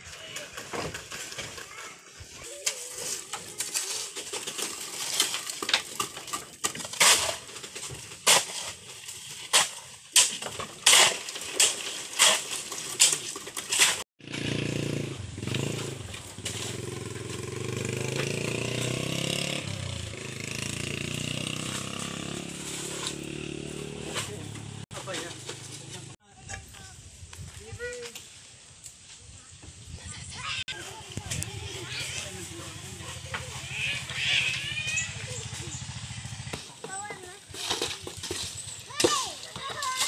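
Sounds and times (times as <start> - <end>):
metal strikes and scrapes: 21.6 - 26.1.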